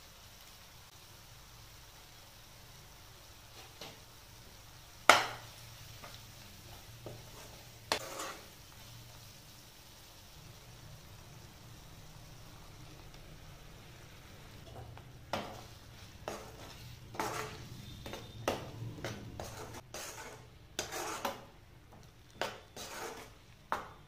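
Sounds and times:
metal spoon stirring in a pan: 5.1 - 8.8, 14.5 - 24.0.

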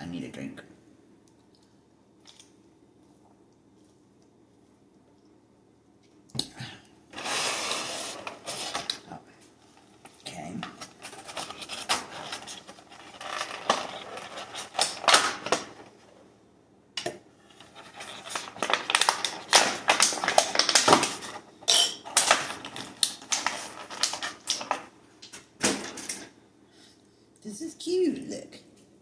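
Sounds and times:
plastic packaging crinkling: 7.2 - 16.0, 17.5 - 26.3.

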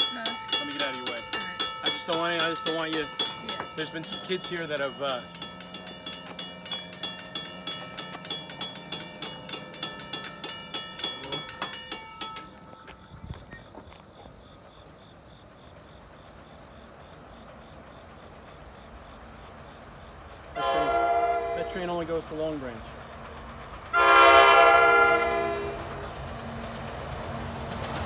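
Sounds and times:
railroad crossing bell ringing: 0.0 - 13.6, 20.6 - 22.9, 23.9 - 26.3
insect chorus: 0.0 - 28.0.

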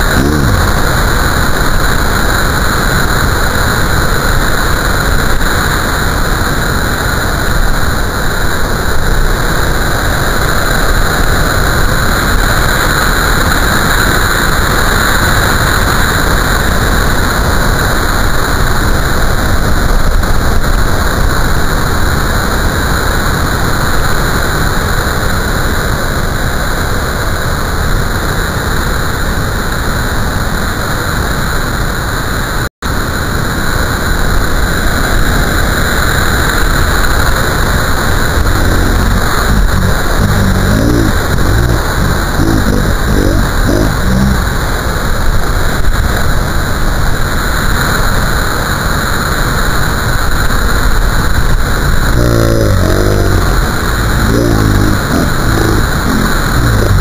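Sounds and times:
surf roaring: 0.0 - 3.2, 37.5 - 45.1, 51.8 - 57.0.

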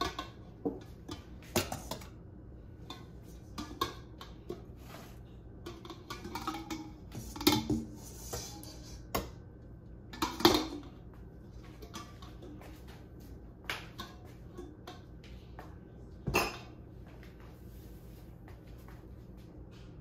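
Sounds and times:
metal pots and utensils clinking: 0.0 - 2.2, 2.8 - 9.3, 10.1 - 11.0, 11.7 - 12.7, 16.3 - 16.8.

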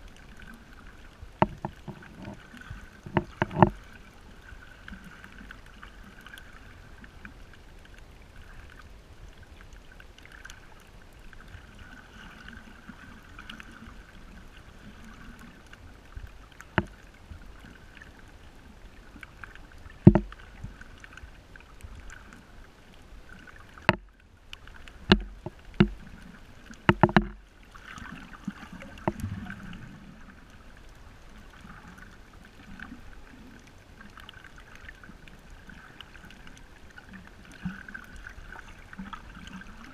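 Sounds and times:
sharp underwater clicks: 1.4 - 3.8, 19.2 - 22.4, 23.7 - 27.4, 28.0 - 29.8.

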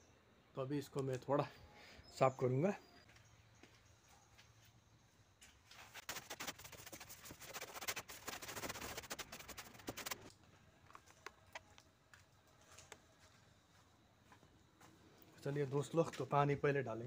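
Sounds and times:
brush scraping metal roof: 5.8 - 10.3.

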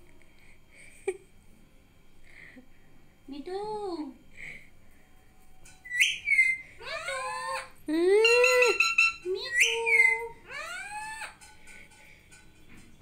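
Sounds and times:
parakeet calling: 5.8 - 11.4.

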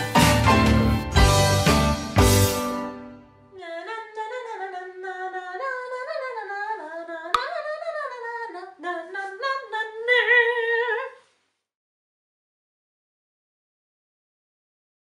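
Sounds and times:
woman singing a cappella: 3.6 - 11.3.

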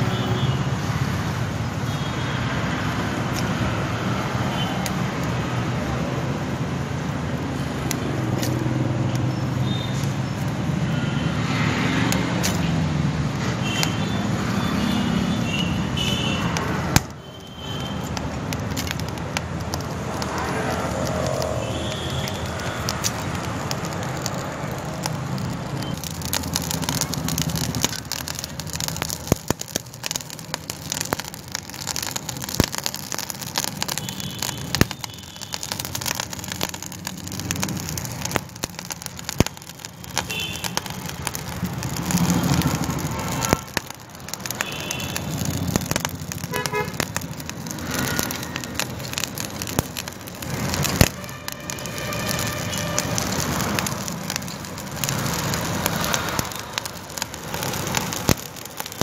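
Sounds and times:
forge fire crackling: 0.0 - 59.0
sharp clicks and knocks: 17.9 - 35.0.

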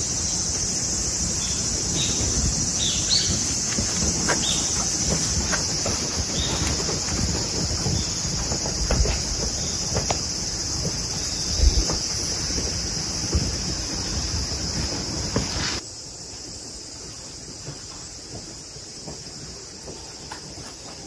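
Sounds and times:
wind rumbling on microphone: 0.0 - 15.8
high-pitched insect drone: 0.0 - 20.2.

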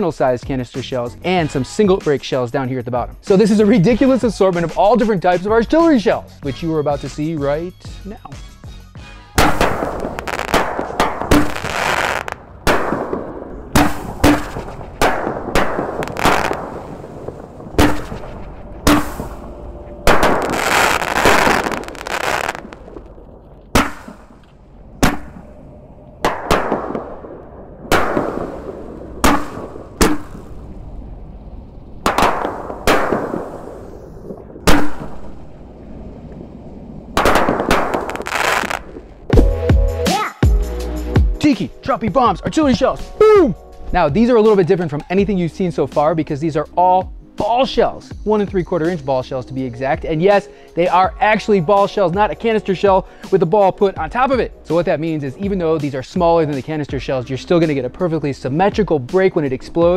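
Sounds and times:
firework shells banging: 9.4 - 30.8, 32.0 - 35.6, 37.1 - 39.4.

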